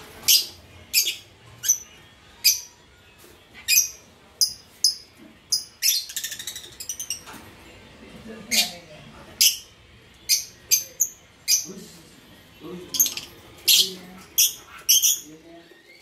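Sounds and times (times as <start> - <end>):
lovebirds chirping: 0.0 - 7.5, 8.1 - 16.0
rattling bird chatter: 12.9 - 15.3.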